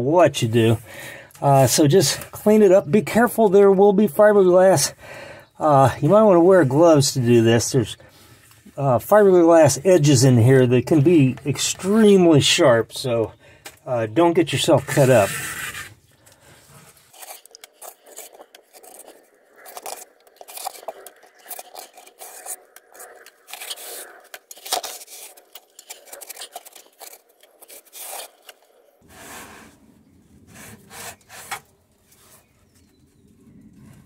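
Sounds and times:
rag scraping sludge off fiberglass: 14.8 - 16.0, 16.7 - 28.6.

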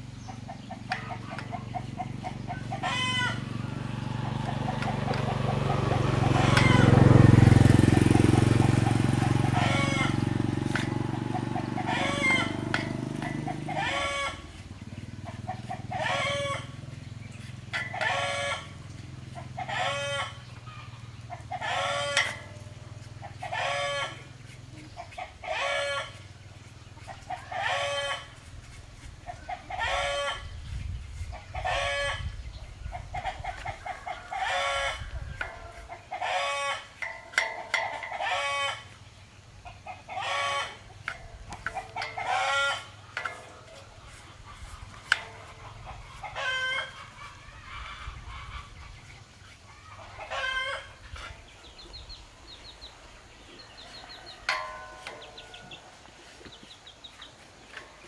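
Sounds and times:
chicken calling: 0.4 - 16.8, 39.7 - 57.9.

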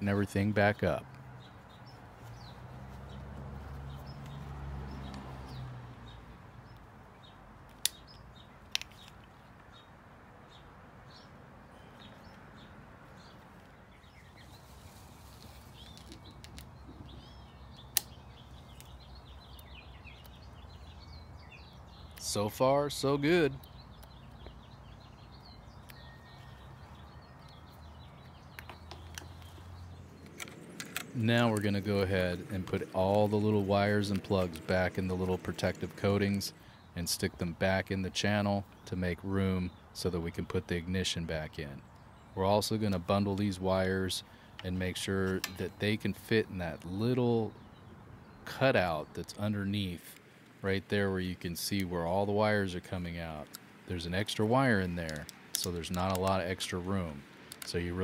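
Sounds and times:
small birds chirping: 0.0 - 58.0
soft clicks: 55.0 - 56.6.

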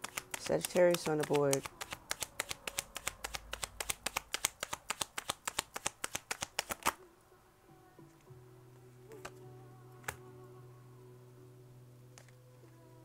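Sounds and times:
cards being shuffled: 0.0 - 7.0.

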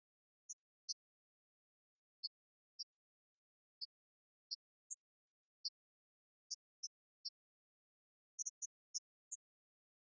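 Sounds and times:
faint high-pitched ticks: 0.0 - 10.0.

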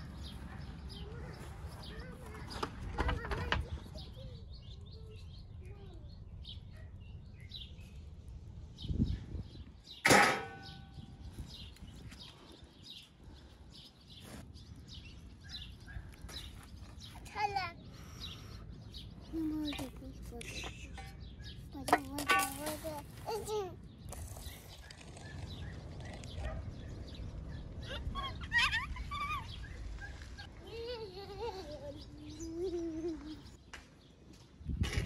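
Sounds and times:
birds chirping: 0.0 - 34.7
sharp metallic clank: 10.0 - 11.0.

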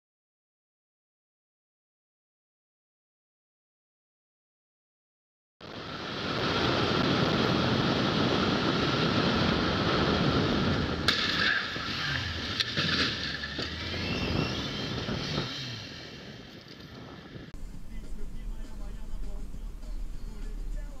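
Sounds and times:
car road and engine noise: 5.6 - 21.0.

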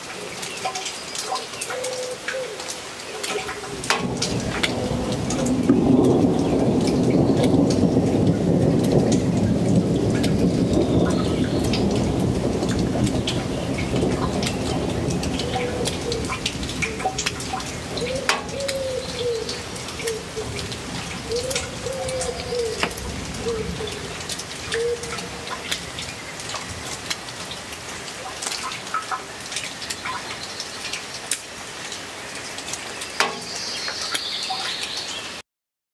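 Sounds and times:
rain drops ticking: 0.0 - 35.4
pigeon cooing: 18.0 - 25.3.

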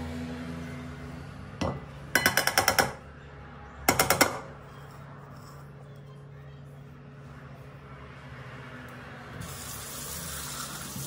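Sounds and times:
glass tapping against bowl: 1.6 - 3.0.

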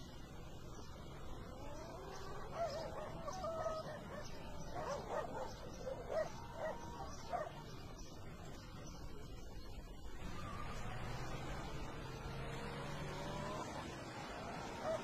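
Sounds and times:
steady low background noise: 0.0 - 15.0.

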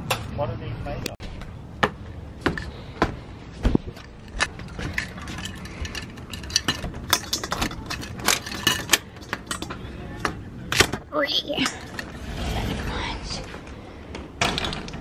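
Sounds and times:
keys jingling: 4.3 - 9.7.

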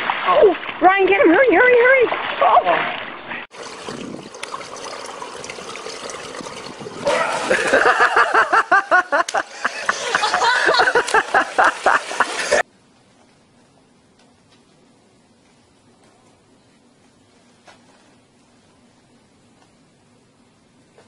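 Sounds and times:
water splashing and sloshing: 0.0 - 12.7.

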